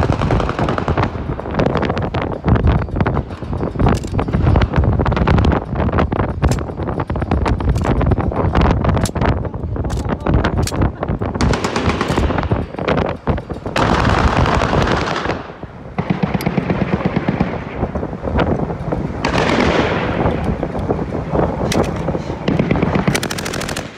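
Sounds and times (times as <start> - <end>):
automatic gunfire bursts: 10.0 - 12.6, 13.8 - 17.6, 22.5 - 23.9.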